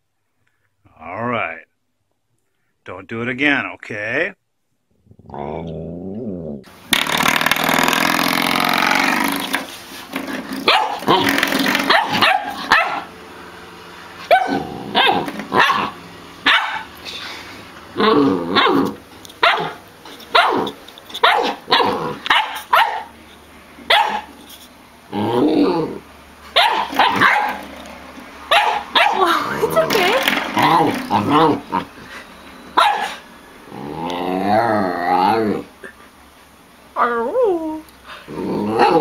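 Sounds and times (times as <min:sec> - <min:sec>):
puppy barking and growling: 0:05.0 - 0:13.3, 0:14.1 - 0:17.0, 0:17.9 - 0:24.5, 0:25.1 - 0:32.1, 0:32.7 - 0:35.9, 0:37.0 - 0:39.0.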